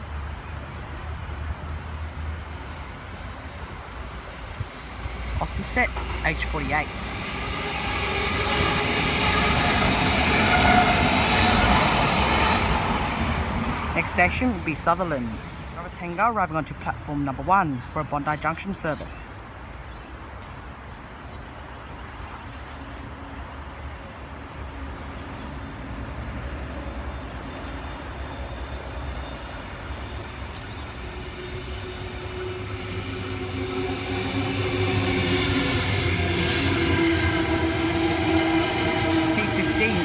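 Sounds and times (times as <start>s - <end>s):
electric train rumble: 0.0s - 15.8s, 24.1s - 40.0s
wheel and rail noise: 0.0s - 15.8s, 19.5s - 40.0s.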